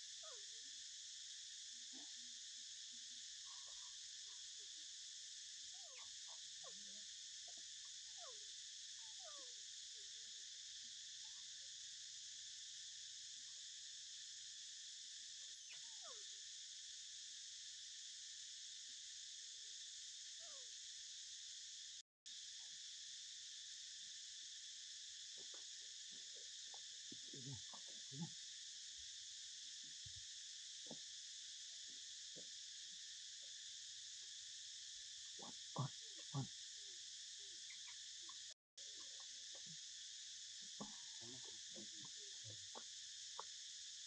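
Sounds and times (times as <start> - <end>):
high-pitched insect chorus: 0.0 - 44.0
faint short chirps and squeaks: 37.7 - 38.0.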